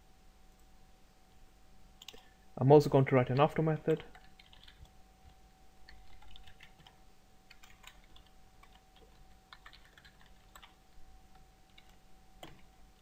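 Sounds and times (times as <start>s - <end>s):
faint steady hum: 0.0s - 13.0s
keyboard typing: 2.0s - 2.3s, 3.3s - 13.0s.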